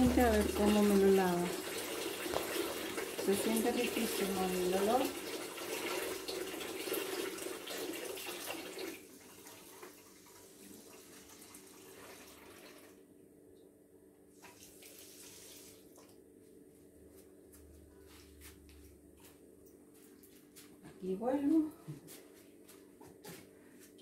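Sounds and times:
water running from a tap: 0.0s - 13.0s, 14.4s - 16.1s.

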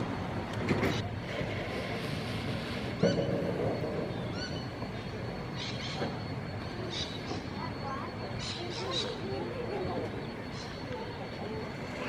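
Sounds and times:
steam locomotive rumbling: 0.0s - 12.0s
bird calling: 4.0s - 12.0s.

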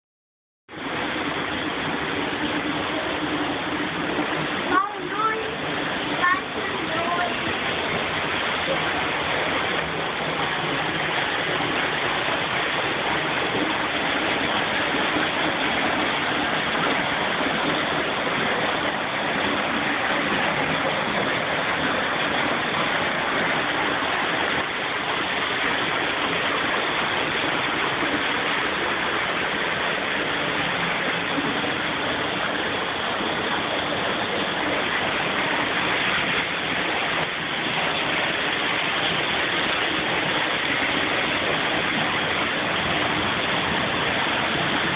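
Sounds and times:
steady rushing noise: 0.7s - 44.9s.

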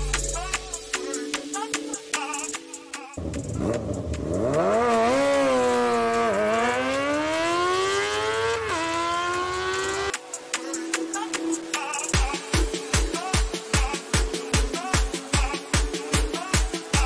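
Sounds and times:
motorcycle engine accelerating: 3.2s - 10.2s.

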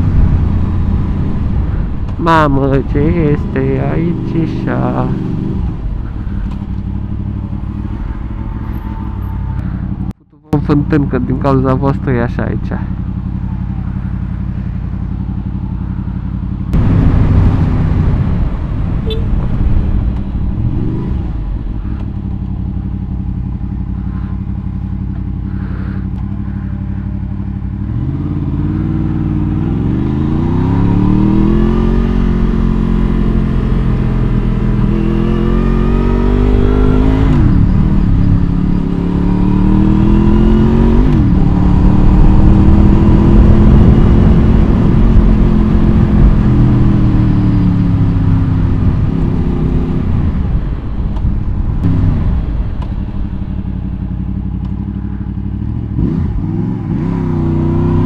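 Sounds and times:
motorcycle accelerating through gears: 0.0s - 10.2s, 12.6s - 58.0s
motorcycle engine idling: 5.2s - 16.8s, 19.1s - 29.5s, 50.5s - 56.6s.

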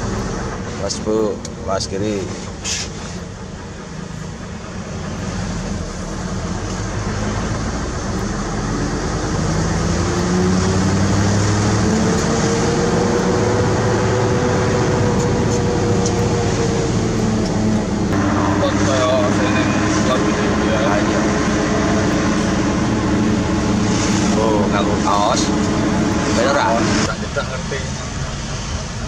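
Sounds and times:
road noise: 0.0s - 29.0s
truck diesel engine accelerating: 0.0s - 29.0s.

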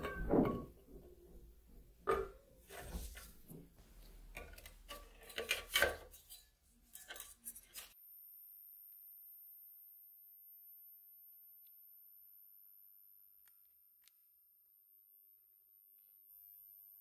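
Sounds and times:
scraping handling noises: 2.1s - 8.0s.

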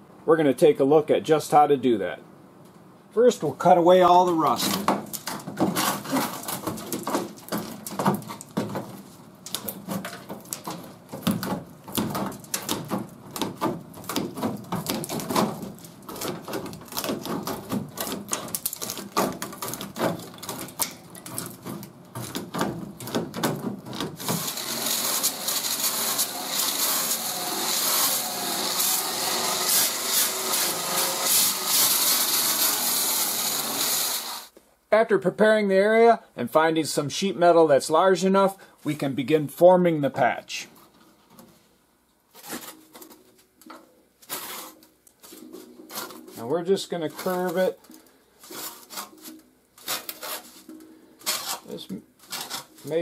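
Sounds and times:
disc grinder grinding metal: 24.2s - 34.5s.

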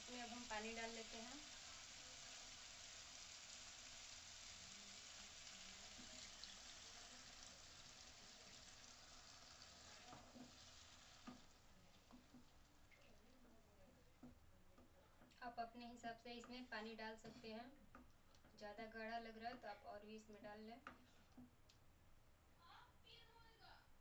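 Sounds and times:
water pouring into pan: 0.0s - 12.5s
food sizzling in a pan: 0.0s - 13.2s.

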